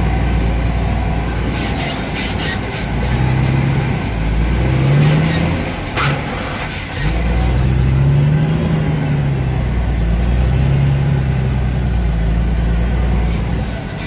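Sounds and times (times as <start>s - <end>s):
truck engine revving: 0.0s - 14.0s.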